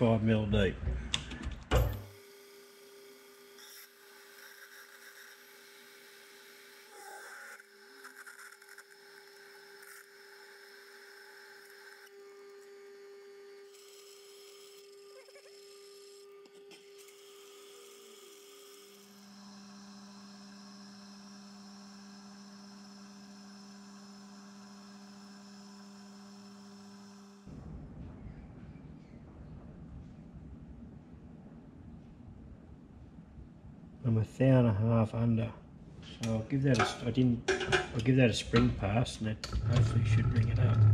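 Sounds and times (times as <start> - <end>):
metal lathe humming: 1.8 - 27.4
drill cutting into metal: 2.1 - 12.9, 13.6 - 27.5
lower hum: 37.1 - 40.9.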